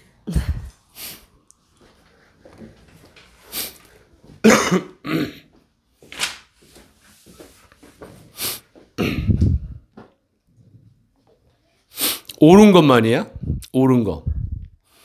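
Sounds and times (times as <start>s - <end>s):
person coughing: 4.4s - 5.5s, 9.0s - 9.8s.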